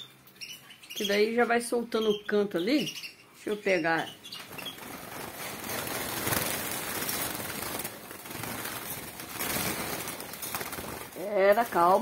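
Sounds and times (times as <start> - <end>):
birds flapping wings: 4.4 - 12.0.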